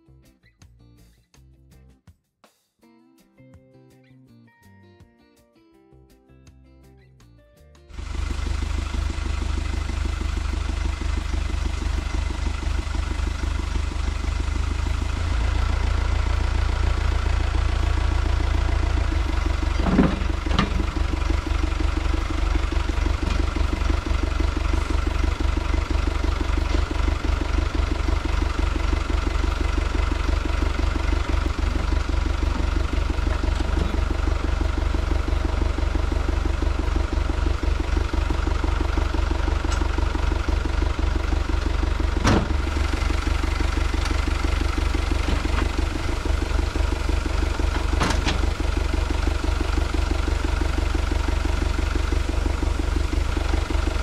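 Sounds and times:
tractor engine idling: 7.9s - 54.0s.

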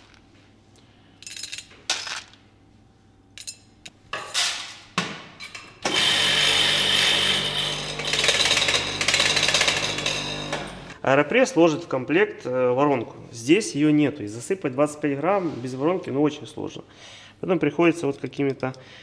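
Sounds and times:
electric coffee grinder grinding: 5.9s - 11.0s.

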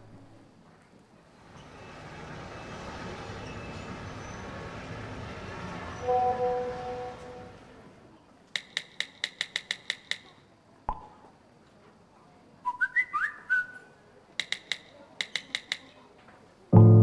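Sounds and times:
keyboard typing clicks: 14.4s - 15.9s.

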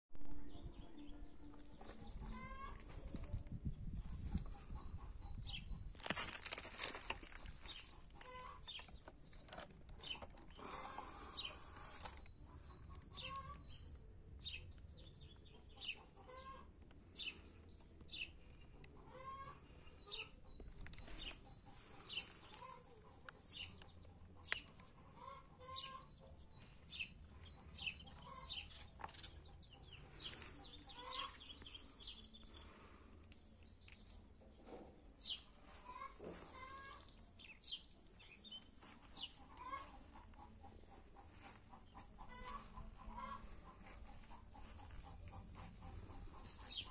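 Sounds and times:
birds chirping: 4.0s - 46.9s.

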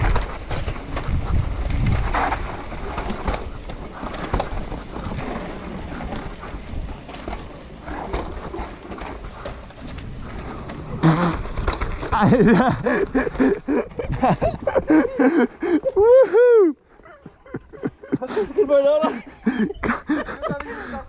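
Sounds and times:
bike tyres rolling over rock: 0.0s - 16.1s
bike rattling: 0.0s - 16.3s.

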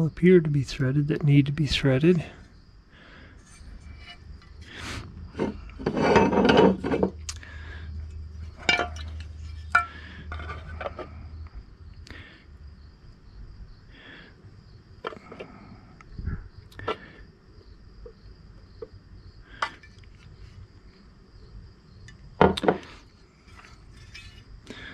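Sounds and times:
parts scraping and rattling: 3.2s - 11.4s, 19.6s - 20.6s, 22.0s - 24.9s.

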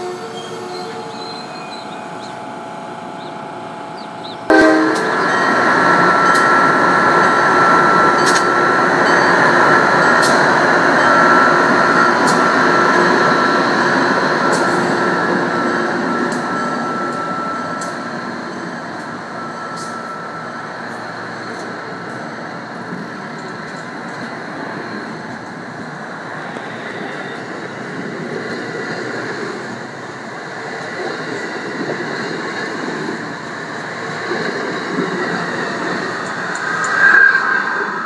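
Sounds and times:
train wheels rushing on rails: 0.0s - 38.0s
steady high tone: 1.7s - 21.4s.

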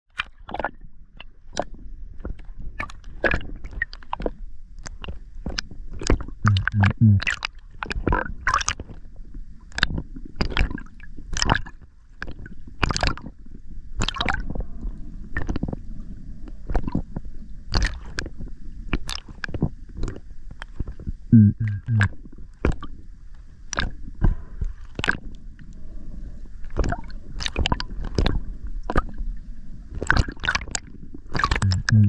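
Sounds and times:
low hum: 6.5s - 7.2s, 21.3s - 22.1s, 31.6s - 32.0s
muffled underwater rumble: 6.5s - 7.3s, 21.3s - 22.1s, 31.4s - 32.0s.

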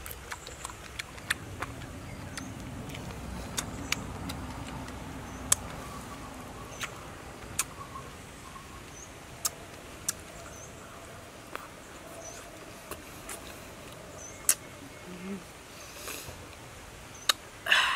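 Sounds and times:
wet chewing mouth sounds: 0.0s - 7.9s, 11.5s - 14.7s.

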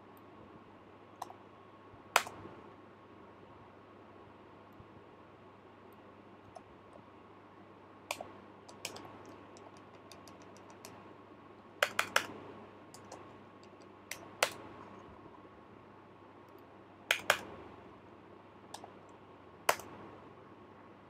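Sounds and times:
faint steady hum: 0.0s - 21.0s
computer keyboard typing: 8.1s - 11.0s, 11.8s - 12.3s, 13.0s - 14.6s, 17.1s - 17.4s.

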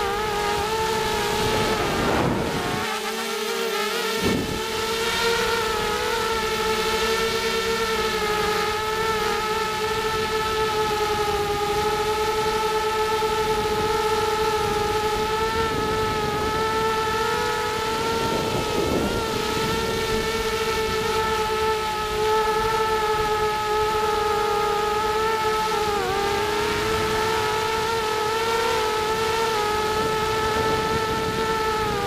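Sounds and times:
rough wind noise: 0.0s - 3.1s, 4.1s - 7.8s, 13.4s - 24.0s, 25.6s - 32.0s
quadcopter motors whining: 0.0s - 32.0s.

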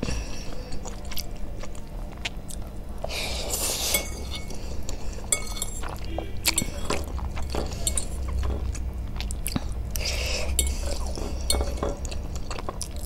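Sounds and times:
close-up chewing noodles: 0.0s - 13.0s.

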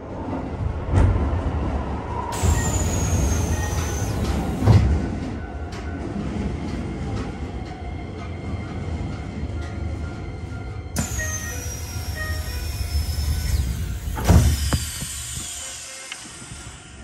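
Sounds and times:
train low rumble: 0.0s - 17.0s
high squeal sliding down: 2.3s - 4.8s, 11.0s - 17.0s.

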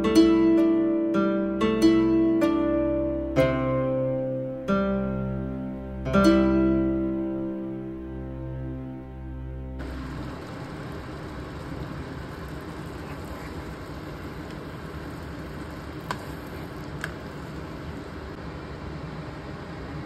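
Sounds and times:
harp-like music: 0.0s - 10.2s.

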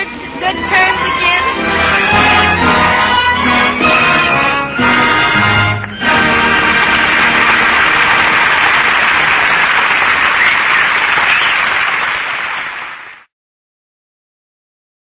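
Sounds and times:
audience applauding: 5.7s - 13.3s.

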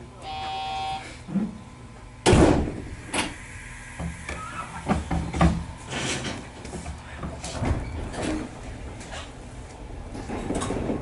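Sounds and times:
low steady hum: 0.0s - 11.0s
short buzzer tone: 0.3s - 1.1s
train doors shutting with a thud: 2.2s - 3.4s, 4.0s - 9.4s, 10.0s - 11.0s.

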